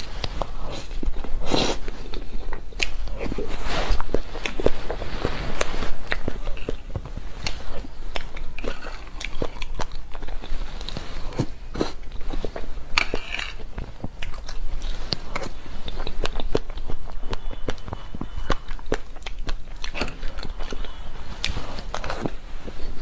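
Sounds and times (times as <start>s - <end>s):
wet mouth chewing smacks: 13.7s - 23.0s.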